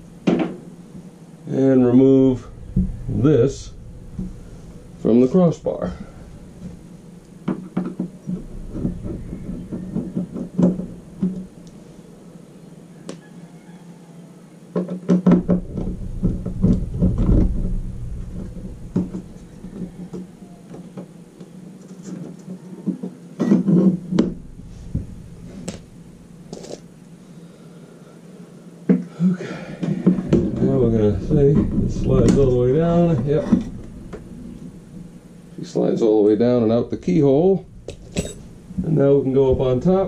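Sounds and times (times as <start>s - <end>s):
low rumble: 0.0s - 7.4s, 8.2s - 9.7s, 15.4s - 20.4s, 24.3s - 26.5s, 30.0s - 40.0s
steady low hum: 0.0s - 40.0s.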